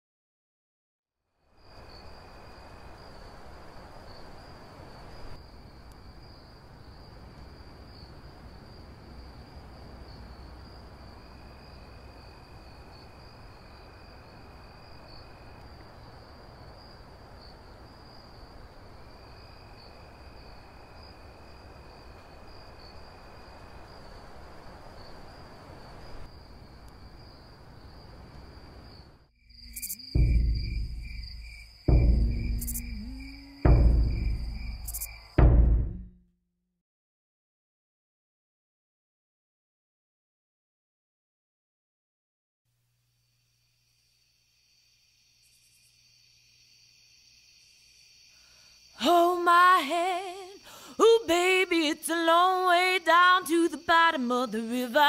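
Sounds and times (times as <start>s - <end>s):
crickets trilling: 1.3s - 35.5s, 43.1s - 55.0s
lower insect trill: 1.3s - 35.5s, 43.1s - 55.0s
faint low rumble: 30.2s - 36.2s
music with heavy drum hits: 30.2s - 36.2s.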